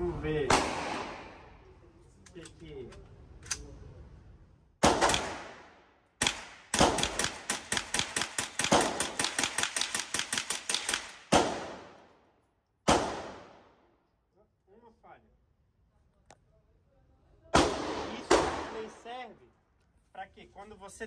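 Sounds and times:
rifle gunshots echoing indoors: 0.5s - 1.5s, 4.8s - 12.2s, 12.9s - 13.8s, 17.6s - 19.0s.

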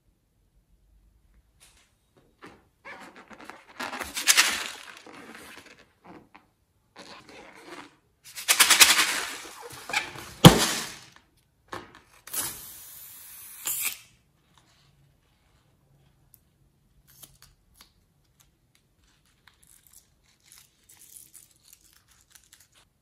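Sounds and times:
rubber balloon squeaking: 2.4s - 4.3s, 4.9s - 8.0s, 9.1s - 10.8s
scissors cutting balloon: 13.6s - 14.2s.

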